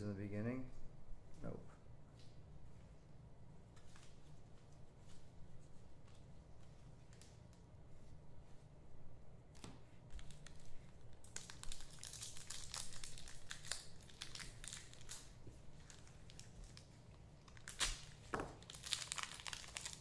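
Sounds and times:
card wrappers crinkling and tearing: 0:10.2 - 0:20.0.

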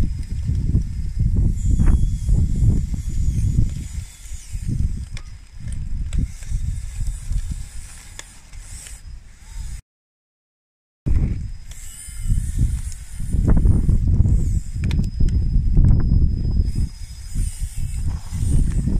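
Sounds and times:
sharp clicks: 0:14.4 - 0:16.0.

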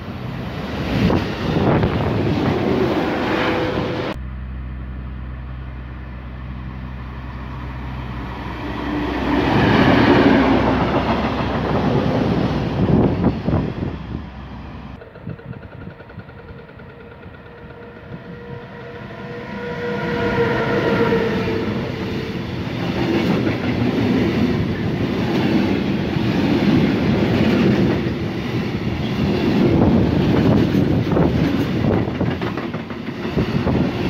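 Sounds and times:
freight train rumbling past: 0:00.0 - 0:34.0
sustained pitched tone: 0:16.8 - 0:22.7.

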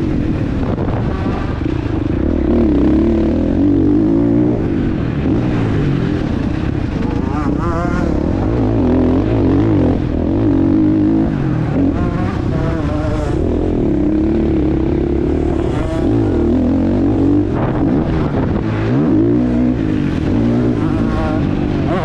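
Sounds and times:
motorcycle engine revving: 0:00.0 - 0:22.0.

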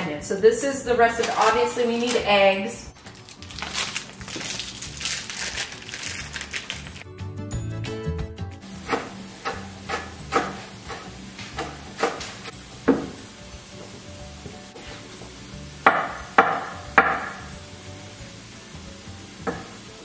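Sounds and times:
knife chopping on wooden board: 0:08.8 - 0:13.2, 0:15.9 - 0:17.4, 0:19.4 - 0:19.8.

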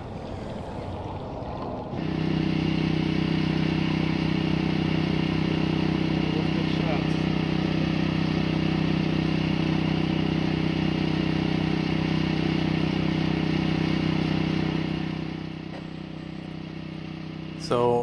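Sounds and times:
engine running steadily: 0:00.0 - 0:18.0.

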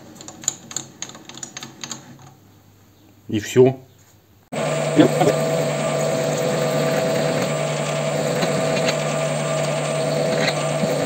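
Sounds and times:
drill boring into steel: 0:04.6 - 0:11.0
metal lathe whining: 0:04.6 - 0:11.0.

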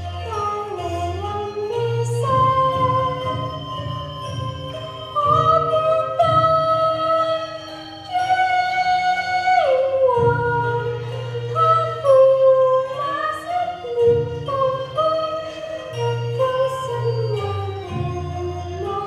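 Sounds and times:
instrumental accompaniment: 0:00.0 - 0:19.0.

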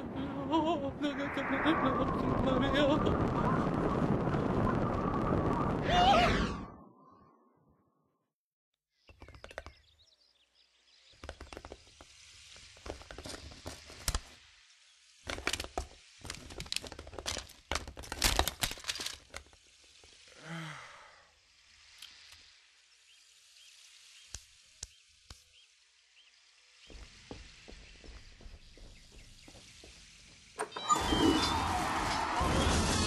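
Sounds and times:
falling sigh-like voice: 0:20.3 - 0:21.3.

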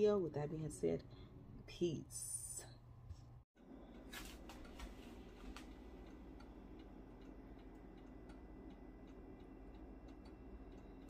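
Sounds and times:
low steady hum: 0:00.0 - 0:11.0
faint ticking: 0:05.5 - 0:11.0.

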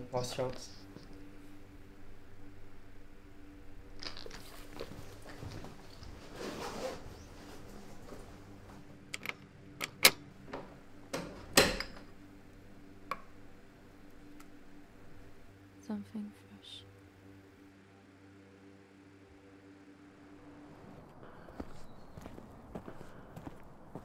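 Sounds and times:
low steady hum: 0:00.0 - 0:24.0
soft rustling: 0:04.4 - 0:08.9.

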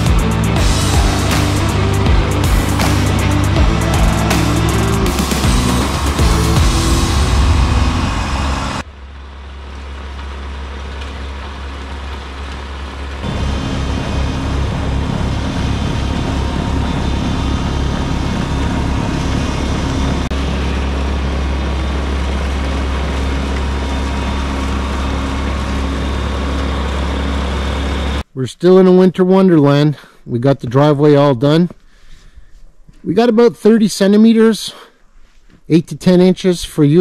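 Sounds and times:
loud music: 0:00.0 - 0:08.9, 0:13.2 - 0:20.4
tractor diesel engine running: 0:00.0 - 0:28.3.

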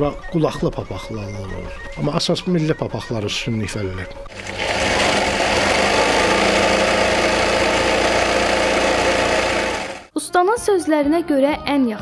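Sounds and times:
sewing machine running: 0:04.3 - 0:10.1.

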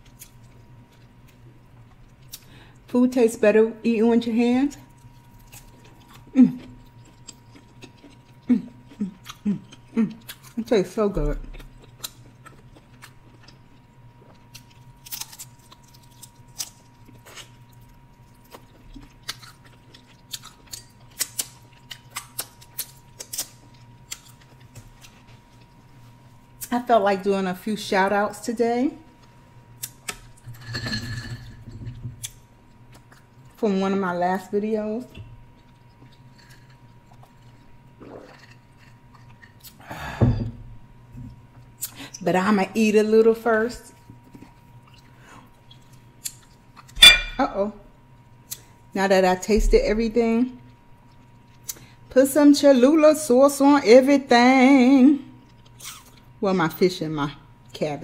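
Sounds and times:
faint electrical hum: 0:00.0 - 0:58.0
crunchy chewing: 0:04.8 - 0:10.7, 0:11.3 - 0:25.9, 0:35.4 - 0:39.8.

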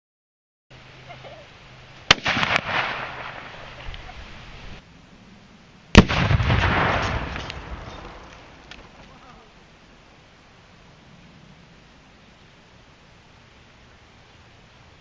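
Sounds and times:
exploding target blast: 0:02.1 - 0:03.6, 0:05.9 - 0:08.3
rifle shot: 0:02.1 - 0:03.8, 0:05.9 - 0:08.6.

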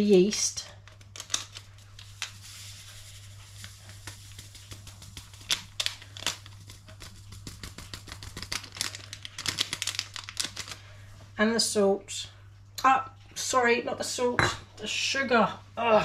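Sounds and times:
foil sachet crinkling: 0:00.8 - 0:11.0.

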